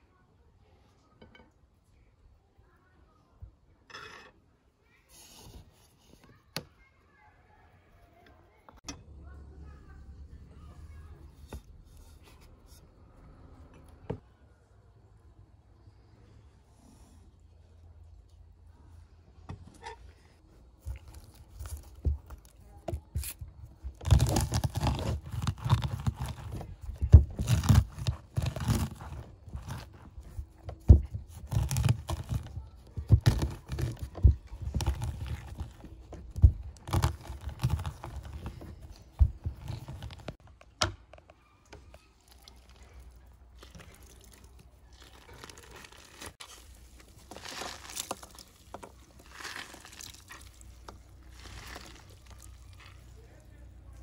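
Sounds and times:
fruit crunching under palms: 20.6 - 41.2, 42.2 - 54.0.

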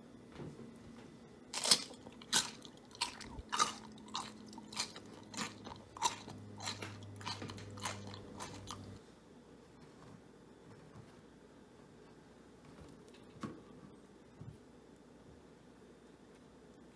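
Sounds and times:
person chewing crunchy food: 1.5 - 9.0.

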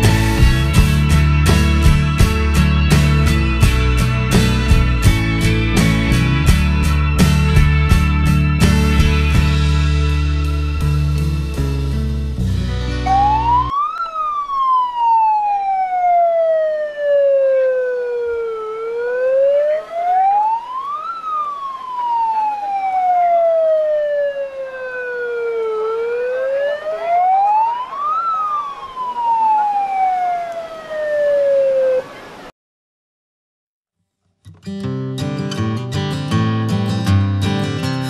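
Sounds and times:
megaphone siren wailing: 0.0 - 1.1, 13.0 - 32.4.

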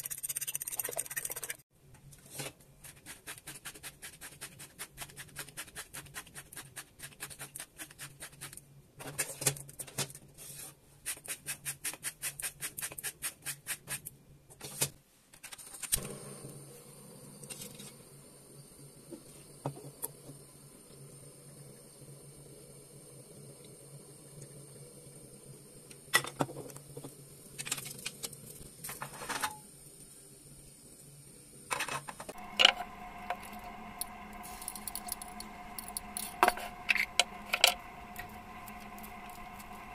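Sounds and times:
faint steady hiss: 32.4 - 39.9
grinders crunching clicks: 32.4 - 39.9.

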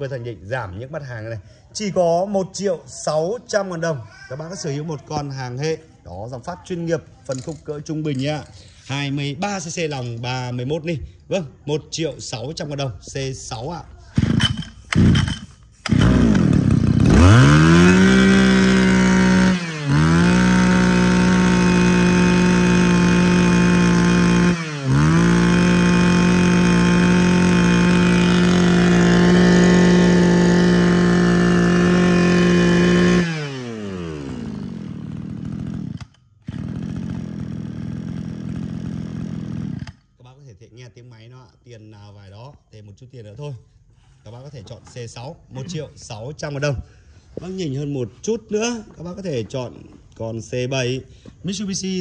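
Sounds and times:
brush cutter engine revving: 14.1 - 40.1.

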